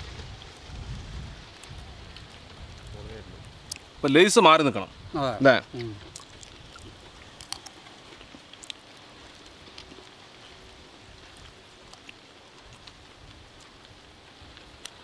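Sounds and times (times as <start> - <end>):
steady low hiss: 0.0 - 15.0
chips crunching: 6.1 - 7.8.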